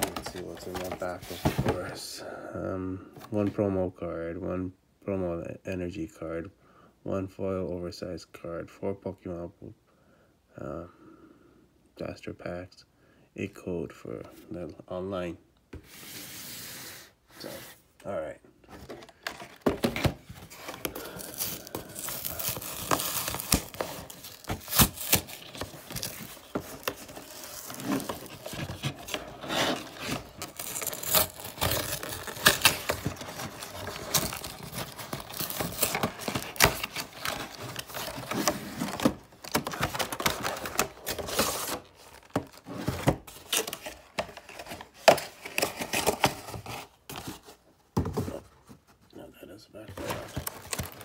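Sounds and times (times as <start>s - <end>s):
packaging crinkling and tearing: 18.9s - 47.3s, 50.0s - 51.0s.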